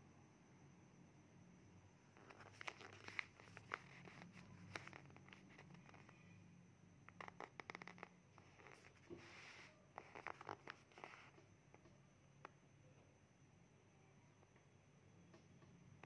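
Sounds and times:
fingertip sliding over paper: 7.6 - 11.3.

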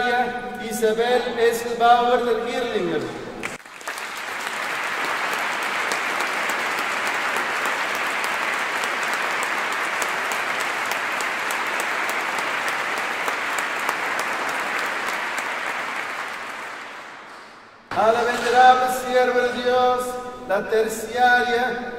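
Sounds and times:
congregation applauding: 3.0 - 19.7.

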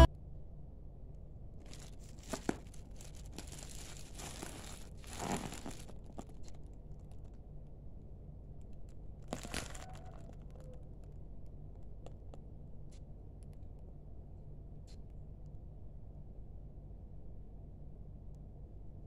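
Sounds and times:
faint steady hum: 0.0 - 19.0
plastic bag crinkling: 1.6 - 7.4, 9.2 - 10.5.

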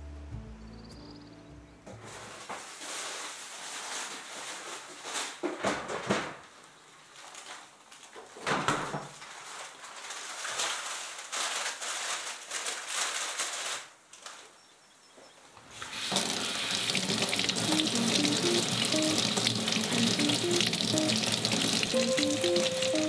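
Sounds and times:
crinkly rustling of groceries: 2.0 - 14.6.

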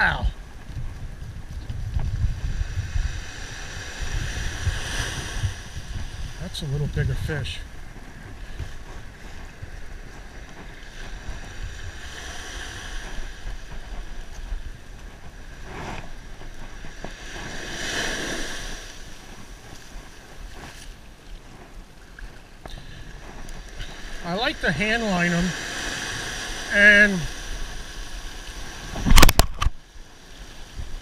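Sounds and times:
light surf washing up: 0.0 - 31.0
wind rumble on microphone: 0.0 - 31.0.

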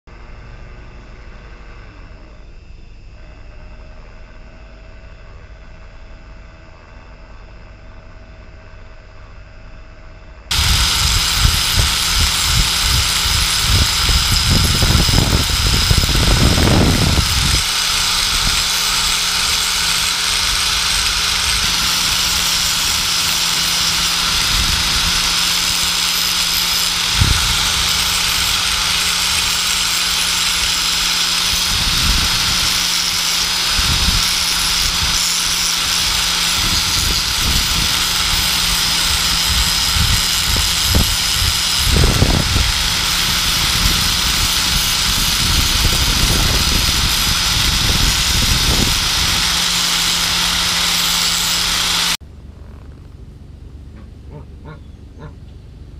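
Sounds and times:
angle grinder whining: 10.5 - 52.2.

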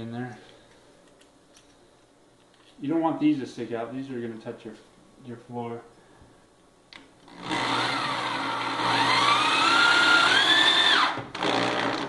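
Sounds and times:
electric drill driving screw: 7.3 - 12.0.

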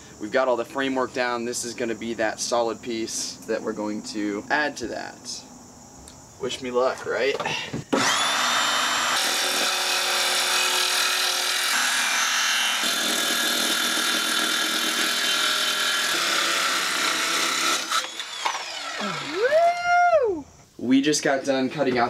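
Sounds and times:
circular saw cutting plywood: 7.9 - 19.4.

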